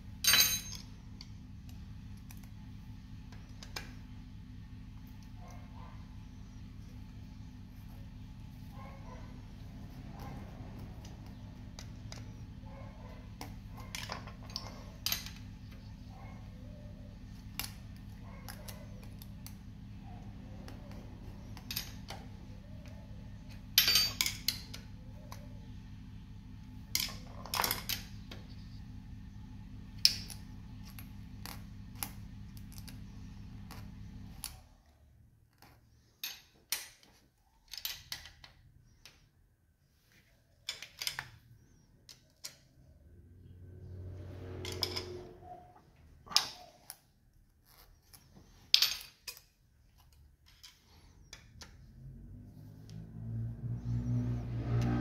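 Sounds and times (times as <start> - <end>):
steel tools clinking on engine: 0.2 - 1.0, 23.8 - 24.8
low hum: 42.8 - 46.2.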